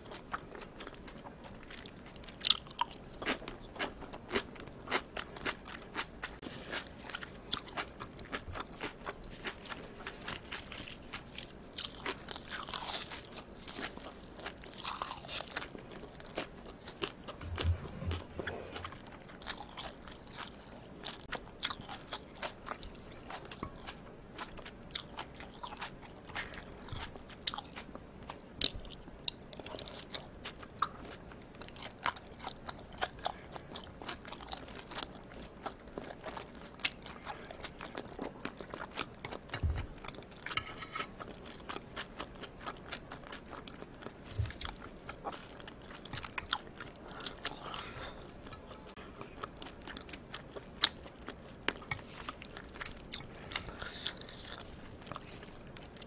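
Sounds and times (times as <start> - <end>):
wet chewing: 0.1 - 28.0.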